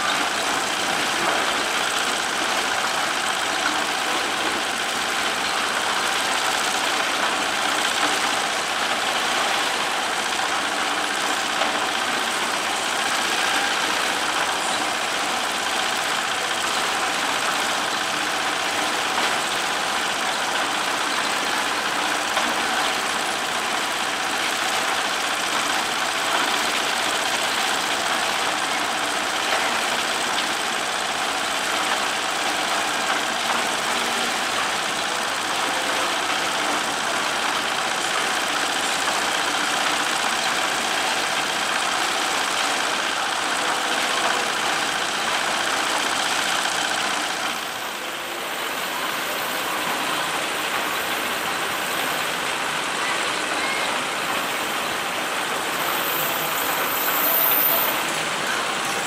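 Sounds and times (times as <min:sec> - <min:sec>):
heavy engines idling: 0:00.0 - 0:59.0.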